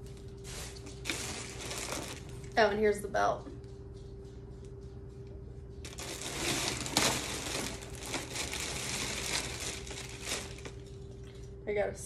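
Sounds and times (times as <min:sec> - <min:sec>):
plastic bag crinkling: 0:00.0 - 0:03.0, 0:05.8 - 0:11.6.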